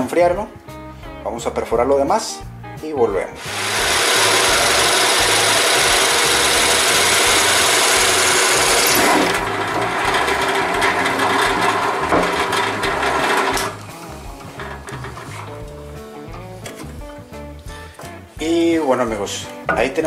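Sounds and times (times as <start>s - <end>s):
drill press cutting wood: 3.4s - 13.9s.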